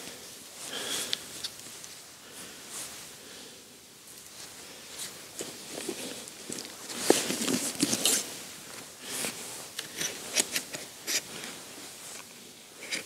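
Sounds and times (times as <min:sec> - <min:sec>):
fabric rustling: 0:04.3 - 0:12.2.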